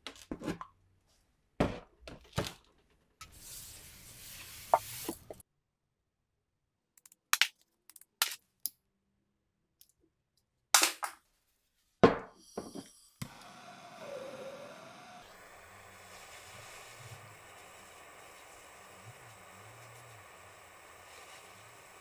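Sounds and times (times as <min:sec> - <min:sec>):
gas torch hissing: 0:12.8 - 0:22.0.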